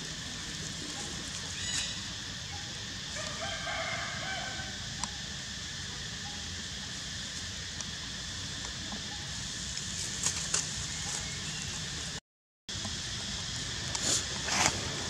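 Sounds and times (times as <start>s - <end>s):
outdoor background hiss: 0.0s - 15.0s
dry leaves crackling: 9.5s - 12.2s.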